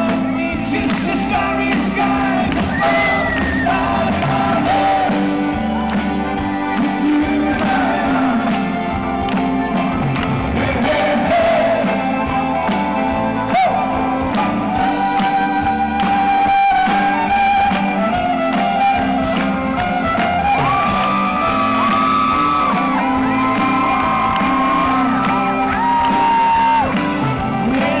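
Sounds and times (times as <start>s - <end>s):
live rock band playing: 0.0s - 28.0s
voices shouting and singing along: 0.6s - 8.8s.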